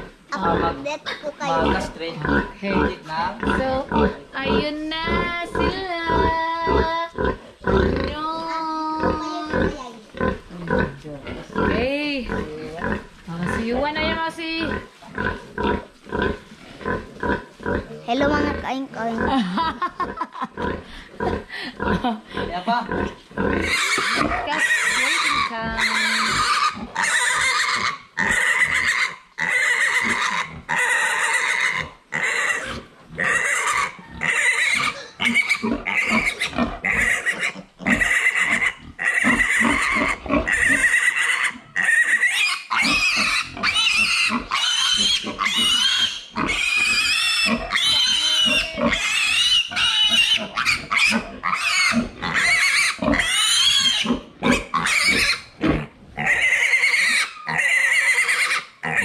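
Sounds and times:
piglet breaths: 0:20.7 - 0:22.6
piglet squealing: 0:23.6 - 0:59.0.

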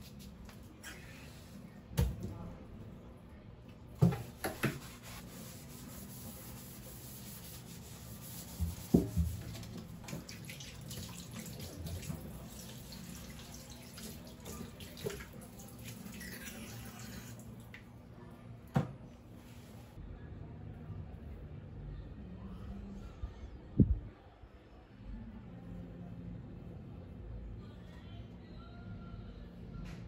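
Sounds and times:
tap water running: 0:08.6 - 0:17.8.

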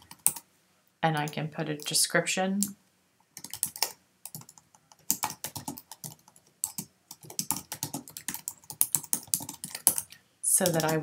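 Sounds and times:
computer keyboard typing: 0:00.0 - 0:00.4, 0:03.4 - 0:11.0.

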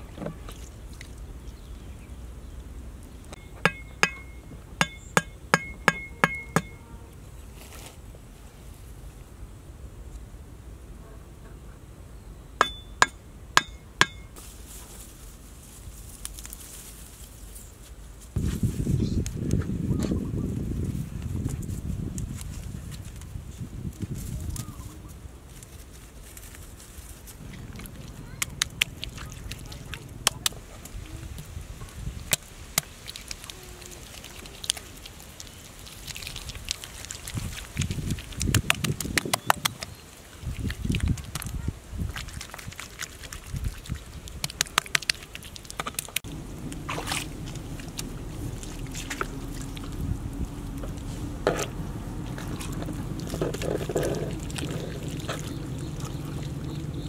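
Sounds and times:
low outdoor background: 0:00.0 - 0:57.0
tool tapping wooden stakes: 0:03.6 - 0:06.8, 0:12.6 - 0:14.3
sharp wet clicks: 0:27.4 - 0:31.0, 0:32.2 - 0:50.0, 0:52.3 - 0:57.0.

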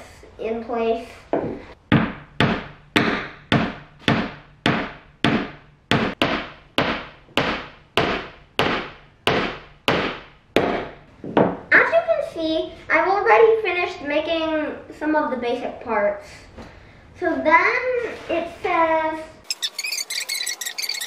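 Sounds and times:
hammer striking nail into wood: 0:01.9 - 0:11.0.

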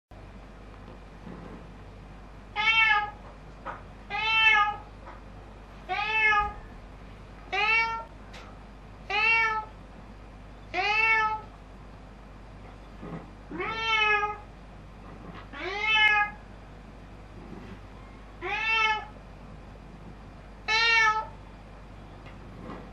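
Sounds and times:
cat meowing: 0:02.6 - 0:03.2, 0:04.1 - 0:04.9, 0:05.9 - 0:06.6, 0:07.5 - 0:08.1, 0:09.1 - 0:09.7, 0:10.7 - 0:11.5, 0:13.5 - 0:14.5, 0:15.5 - 0:16.4, 0:18.4 - 0:19.2, 0:20.6 - 0:21.4.

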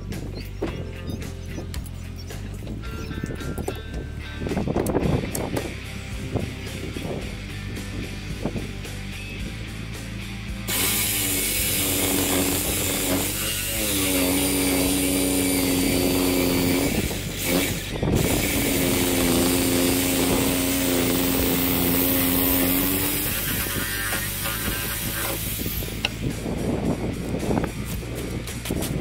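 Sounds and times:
power tool motor on timber: 0:10.7 - 0:26.2.

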